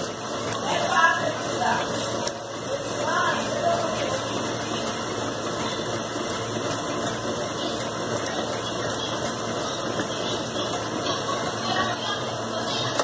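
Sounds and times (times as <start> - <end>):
washing machine agitating: 0.0 - 13.0.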